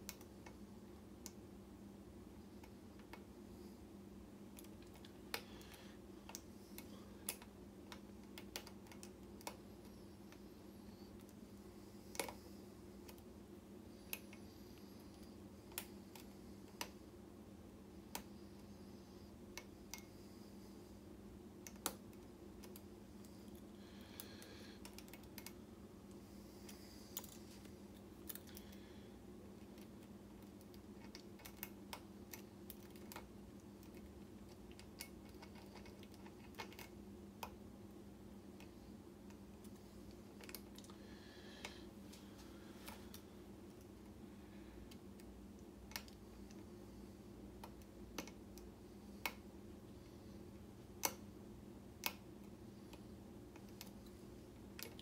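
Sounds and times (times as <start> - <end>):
faint steady hum: 0.0 - 55.0.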